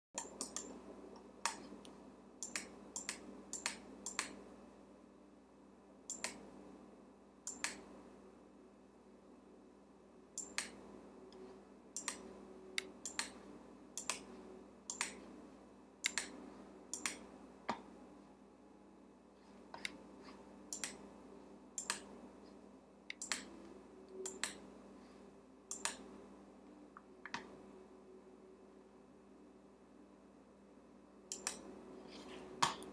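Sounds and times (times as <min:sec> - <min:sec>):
computer mouse clicks: 0:00.2 - 0:00.8, 0:01.4 - 0:04.4, 0:06.1 - 0:06.5, 0:07.5 - 0:07.9, 0:10.4 - 0:10.8, 0:12.0 - 0:12.2, 0:12.8 - 0:13.4, 0:14.0 - 0:14.3, 0:14.9 - 0:15.2, 0:16.0 - 0:17.8, 0:20.7 - 0:21.0, 0:21.8 - 0:22.1, 0:23.1 - 0:23.5, 0:24.2 - 0:24.6, 0:25.7 - 0:26.1, 0:31.3 - 0:31.7
faint steady hum: 0:00.2 - 0:32.9.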